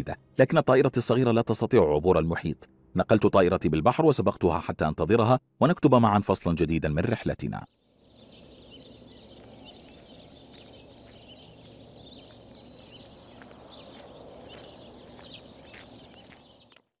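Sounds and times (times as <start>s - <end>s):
birds chirping and twittering: 7.5s - 16.9s.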